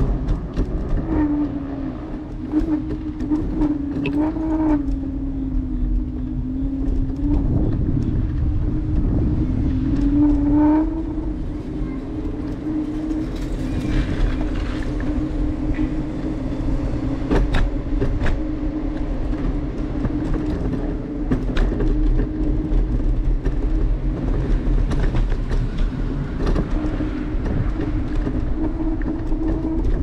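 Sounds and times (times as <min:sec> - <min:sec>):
sharp clicks and knocks: 0:00.0 - 0:05.0
vehicle ride rumble and hum: 0:00.0 - 0:30.0.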